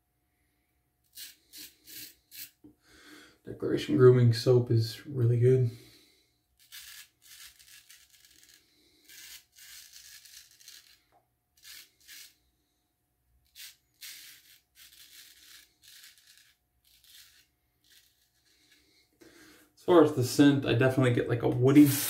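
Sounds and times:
razor scraping stubble: 0:01.1 - 0:02.6, 0:06.6 - 0:12.4, 0:13.4 - 0:18.9.

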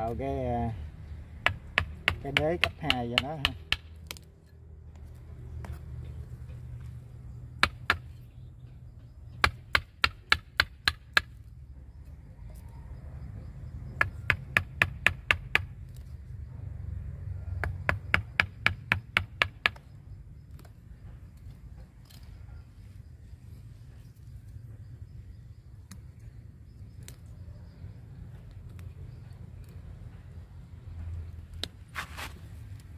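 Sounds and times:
mallet tapping a chisel: 0:01.4 - 0:04.2.

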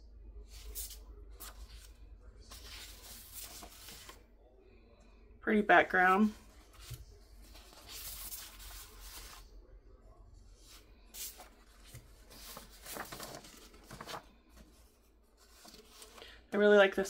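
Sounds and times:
paper rustling: 0:00.5 - 0:04.2, 0:06.5 - 0:09.5, 0:10.6 - 0:16.4.

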